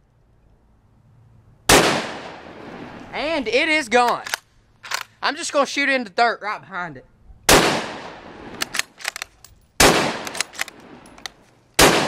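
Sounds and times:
rifle shots with echo: 0:01.7 - 0:03.0, 0:07.5 - 0:09.2, 0:09.8 - 0:11.1, 0:11.8 - 0:12.0
rifle bolt clicks: 0:04.0 - 0:05.2, 0:08.5 - 0:11.9.

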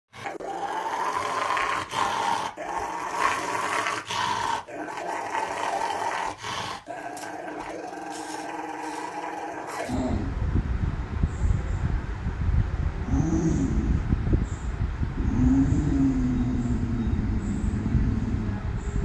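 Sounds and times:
dog growling and snarling: 0:00.1 - 0:10.4, 0:15.2 - 0:19.0.

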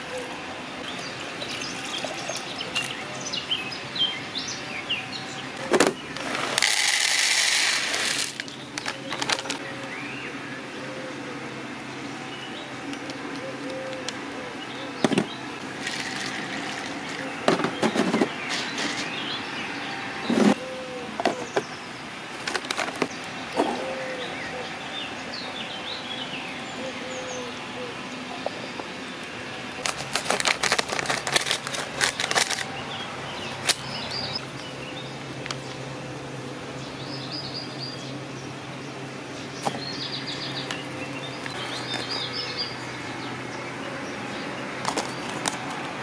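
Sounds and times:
birds chirping: 0:00.0 - 0:46.0
small songbird singing: 0:00.1 - 0:06.2, 0:11.8 - 0:22.1, 0:32.6 - 0:35.9, 0:36.7 - 0:45.4.

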